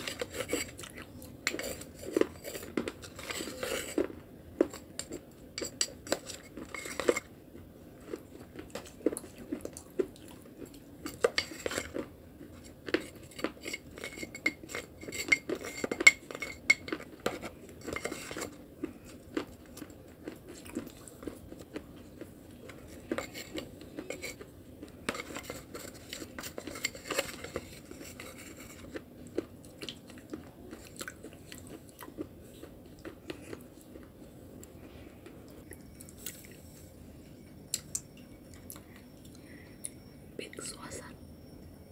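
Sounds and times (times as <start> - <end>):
spoon scraping clay paste: 0.0 - 7.4, 11.0 - 19.6, 22.0 - 29.1.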